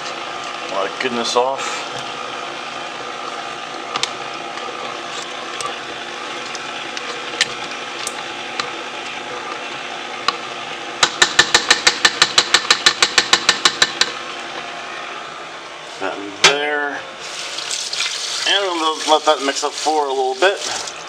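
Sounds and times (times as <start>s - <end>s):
stand mixer motor whirring: 0.0s - 15.7s.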